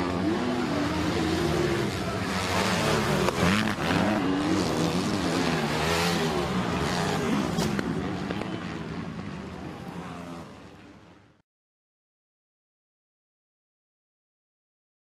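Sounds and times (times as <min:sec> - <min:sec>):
motocross bike engines racing: 0:00.0 - 0:11.4.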